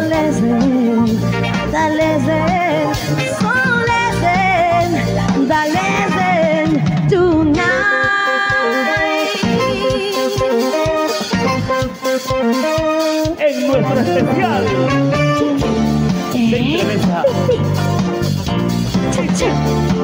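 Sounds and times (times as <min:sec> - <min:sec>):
woman singing: 0:00.0 - 0:11.1
instrumental melody line: 0:00.0 - 0:20.0
live band dance beat: 0:00.0 - 0:20.0.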